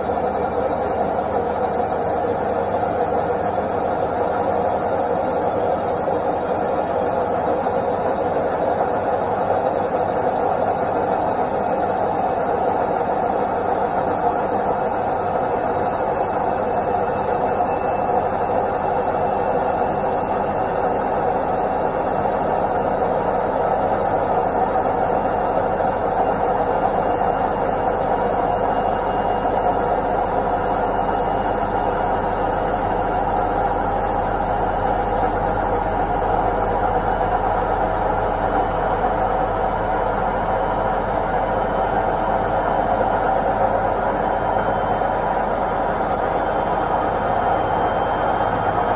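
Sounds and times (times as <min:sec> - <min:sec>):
motor high whine: 0:00.0 - 0:48.9
washing machine drum spinning: 0:00.0 - 0:48.9.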